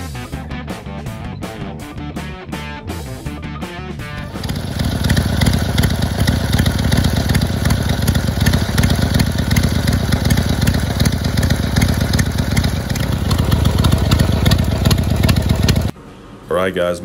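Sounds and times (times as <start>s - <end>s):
motorcycle engine idling: 4.1s - 15.9s.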